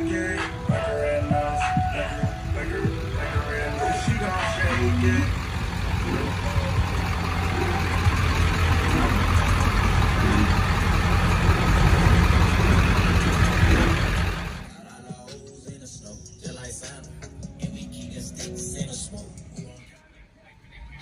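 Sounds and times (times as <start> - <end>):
truck engine rumbling: 0.0 - 14.8.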